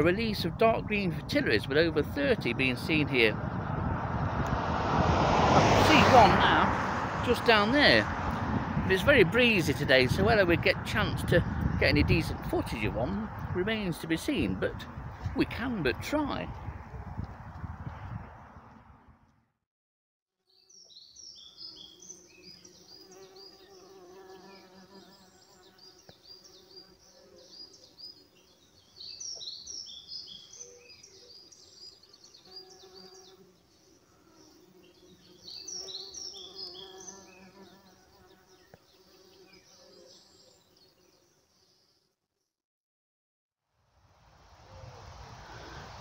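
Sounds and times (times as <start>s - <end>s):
insects buzzing: 20.6s - 42.0s, 44.3s - 46.0s.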